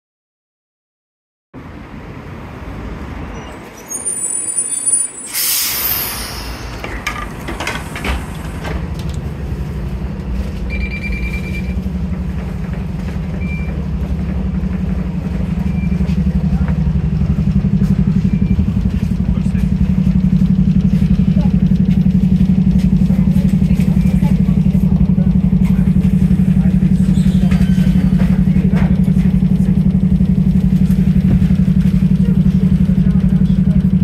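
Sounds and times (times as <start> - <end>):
bus engine humming: 1.6 - 34.0
bus air system hiss: 3.9 - 8.8
card reader beep: 10.7 - 11.8.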